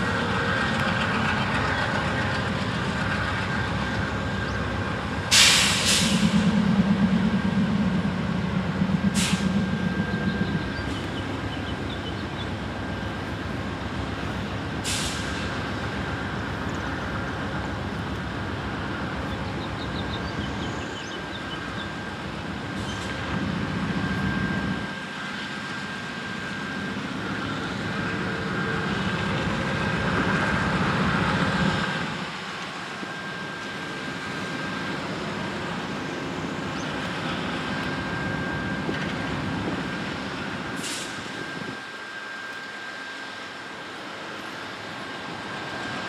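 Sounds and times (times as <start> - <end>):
constant high whine: 0.0 - 46.0
diesel locomotive idling: 0.0 - 46.0
short hiss of air: 5.3 - 6.4, 9.2 - 9.6, 14.8 - 15.6, 40.8 - 41.3.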